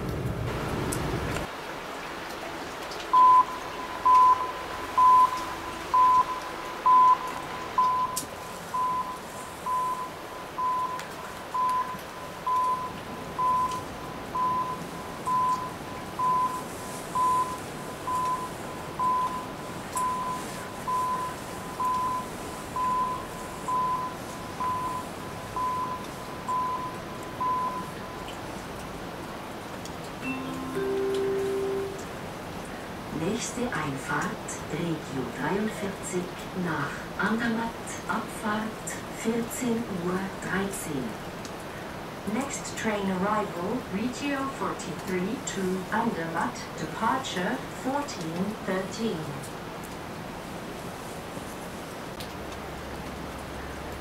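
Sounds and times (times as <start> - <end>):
electronic warning beeps: 3.1 - 28.3.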